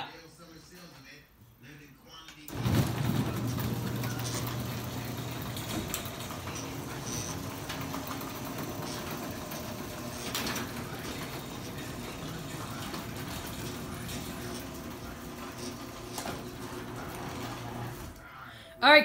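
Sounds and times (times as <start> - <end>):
garage door opener motor: 2.5 - 18.3.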